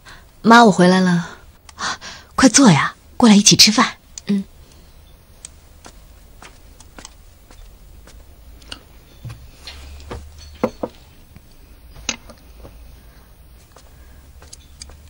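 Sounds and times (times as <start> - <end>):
chopsticks clicking on porcelain bowls: 8.6 - 8.9.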